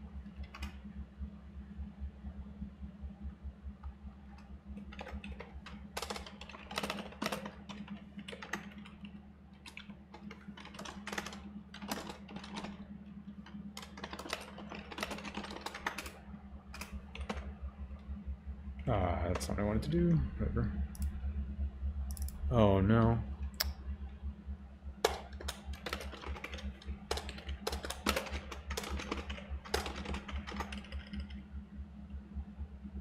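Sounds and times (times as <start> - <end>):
steady low hum: 0.0 - 33.0
fast keyboard typing: 4.8 - 17.6, 25.0 - 31.4.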